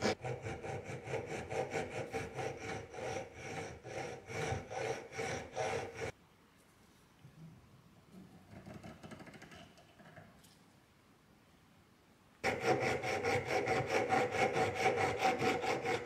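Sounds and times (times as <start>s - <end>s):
hand file scraping metal: 0.0s - 6.2s, 12.4s - 16.0s.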